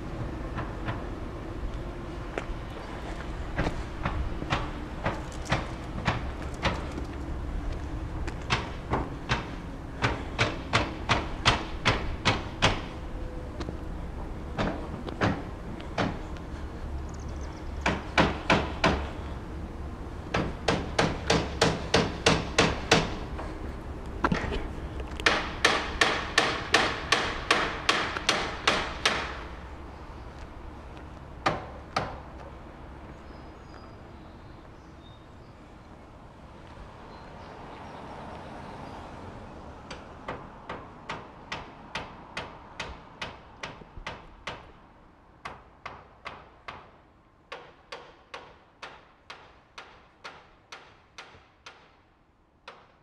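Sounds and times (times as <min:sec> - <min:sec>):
hammer strikes: 0:08.5 - 0:13.0, 0:17.8 - 0:19.1, 0:20.3 - 0:23.5, 0:25.2 - 0:29.4, 0:45.4 - 0:52.0, 0:52.7 - 0:53.0.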